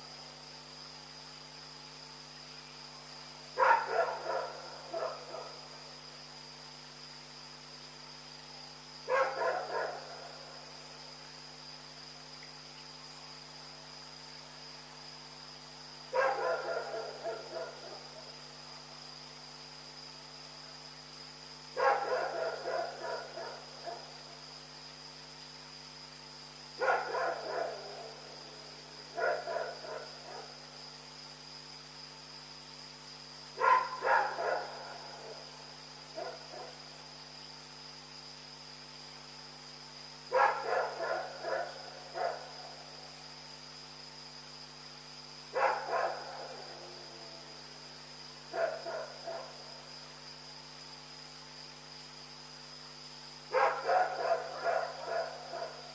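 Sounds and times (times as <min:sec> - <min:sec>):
dog barking: 0:03.6 - 0:05.6, 0:09.1 - 0:10.1, 0:16.1 - 0:18.0, 0:21.8 - 0:24.0, 0:26.8 - 0:28.2, 0:29.2 - 0:30.5, 0:33.6 - 0:35.4, 0:36.2 - 0:36.8, 0:40.3 - 0:42.6, 0:45.6 - 0:46.8, 0:48.5 - 0:49.6, 0:53.5 - 0:55.9.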